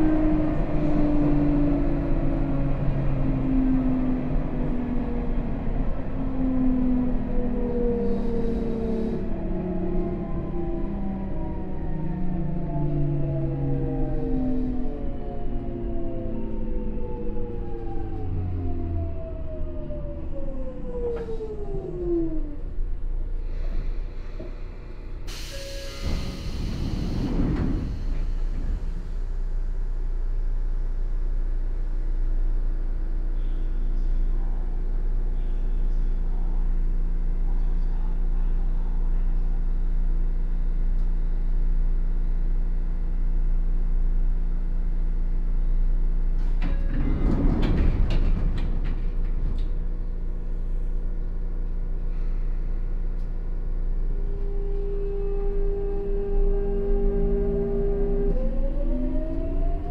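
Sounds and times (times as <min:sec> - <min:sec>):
constant hum: 0:00.0 - 0:59.9
train wheels rumbling on rail: 0:07.2 - 0:19.0, 0:22.7 - 0:39.5, 0:45.4 - 0:59.9
train clattering: 0:46.5 - 0:50.3.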